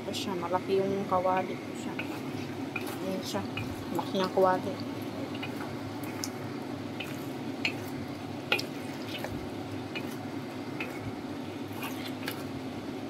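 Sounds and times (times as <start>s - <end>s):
food sizzling in a wok: 1.4s - 13.0s
spatula clicking against pan: 8.5s - 8.7s.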